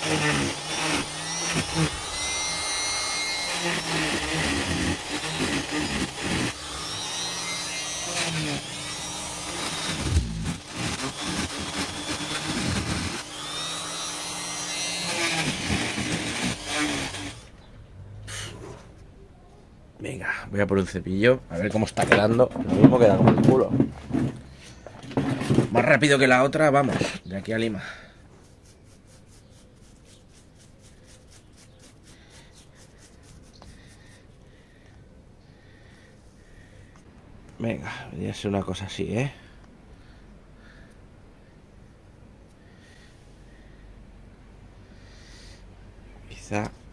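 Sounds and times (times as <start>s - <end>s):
grinder cutting into wood: 0.0s - 17.5s
brush scrubbing wood: 28.3s - 34.2s.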